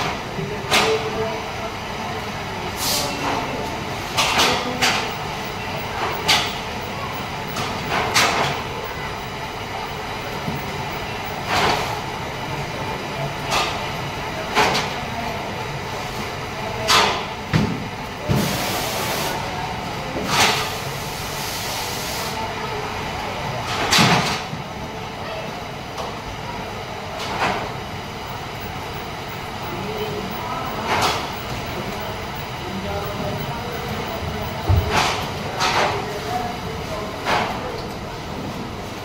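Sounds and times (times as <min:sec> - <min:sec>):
machinery hum: 0:00.0 - 0:39.0
machine clacks and knocks: 0:06.0 - 0:06.7, 0:07.5 - 0:08.7, 0:23.6 - 0:24.5, 0:33.3 - 0:36.0.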